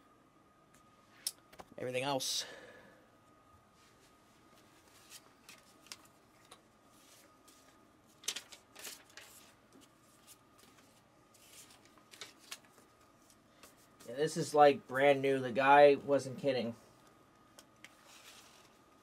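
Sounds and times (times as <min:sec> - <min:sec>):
paper packaging rustling: 0:04.8 - 0:13.8, 0:18.0 - 0:19.0.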